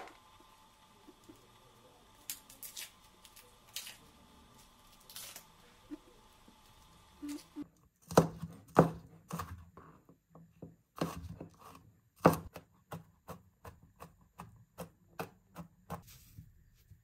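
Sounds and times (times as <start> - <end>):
knife chopping on plastic board: 8.0 - 9.7, 10.6 - 16.0.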